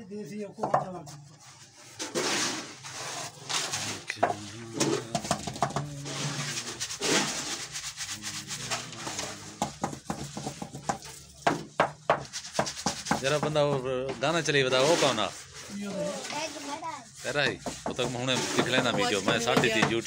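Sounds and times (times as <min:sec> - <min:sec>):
gritty scraping of wet concrete: 0:00.9 - 0:11.4, 0:12.2 - 0:20.0
sharp knocks: 0:04.2 - 0:05.9, 0:09.4 - 0:13.8.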